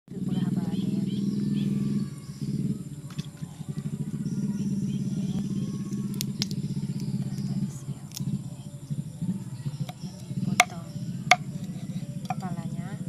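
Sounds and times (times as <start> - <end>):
small engine running: 0.1 - 13.0
sharp clicks: 5.9 - 7.5.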